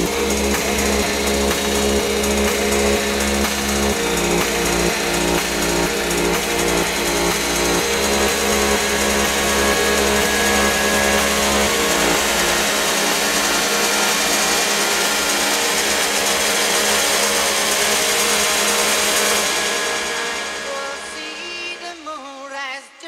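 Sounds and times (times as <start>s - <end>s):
dense hissing noise: 0.0s - 22.0s
electronic dance music: 0.0s - 22.7s.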